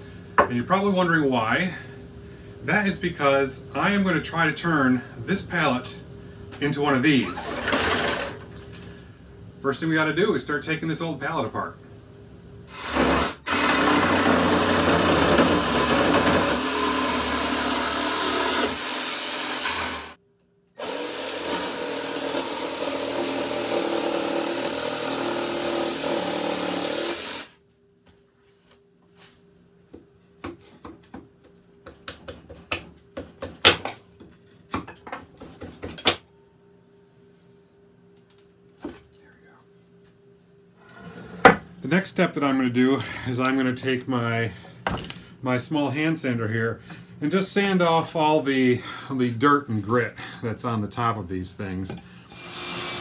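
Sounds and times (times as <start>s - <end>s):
jigsaw cutting wood: 7.4s - 8.4s, 12.7s - 20.2s, 20.8s - 27.5s, 52.4s - 53.0s.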